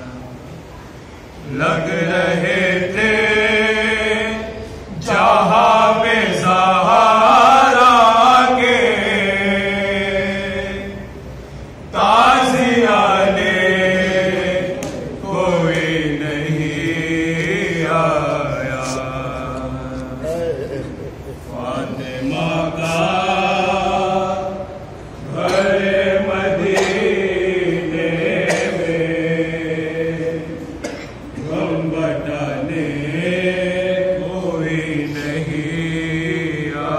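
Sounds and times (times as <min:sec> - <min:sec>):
man chanting unaccompanied: 0:11.9 - 0:30.8.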